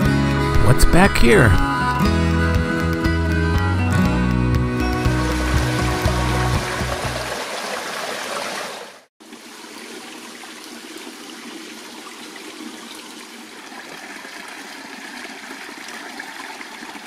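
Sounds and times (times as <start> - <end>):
creek trickling over rocks: 5.1 - 17.0.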